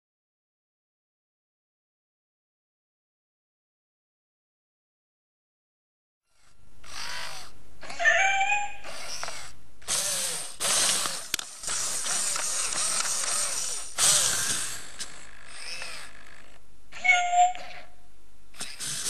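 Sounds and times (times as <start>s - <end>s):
robot motors whirring and grinding: 6.3s - 7.5s, 8.8s - 16.6s, 18.6s - 19.0s
electronic meow-like call: 7.9s - 8.9s, 17.0s - 17.9s.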